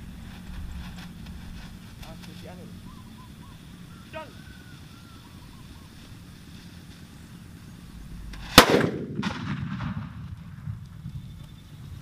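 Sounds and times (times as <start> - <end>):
firecracker bangs: 8.4 - 11.3.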